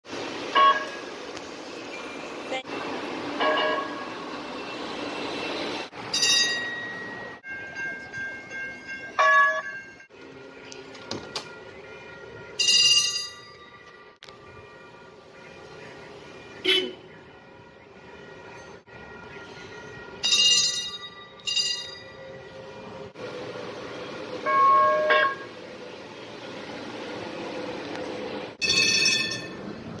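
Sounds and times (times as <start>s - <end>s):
train running noise: 0.0s - 30.0s
train bell ringing: 0.6s - 1.0s, 3.4s - 4.4s, 6.0s - 10.8s, 11.8s - 14.6s, 18.0s - 23.1s, 24.3s - 25.6s, 28.6s - 29.8s
horn honk: 16.6s - 17.2s, 24.4s - 25.6s.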